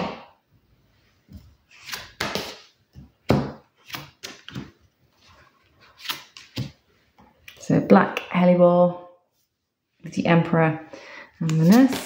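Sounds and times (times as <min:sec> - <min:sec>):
cards slapping on wooden table: 0:01.3 - 0:04.8, 0:06.0 - 0:06.8.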